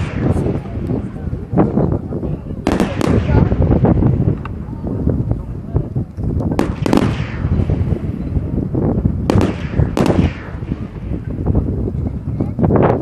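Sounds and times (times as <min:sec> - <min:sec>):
firework shells bursting: 0:06.2 - 0:08.5, 0:09.2 - 0:11.8.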